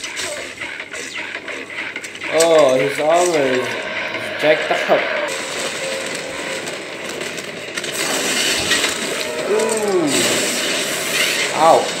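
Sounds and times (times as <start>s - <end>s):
clanks and clatter: 0.0s - 12.0s
person wincing ooh: 9.3s - 10.5s.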